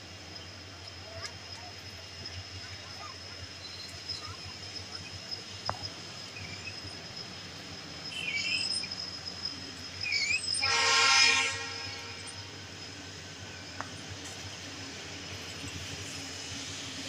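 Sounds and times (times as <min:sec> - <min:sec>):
train coaches rolling on track: 0:00.0 - 0:17.0
train horn: 0:10.6 - 0:12.5.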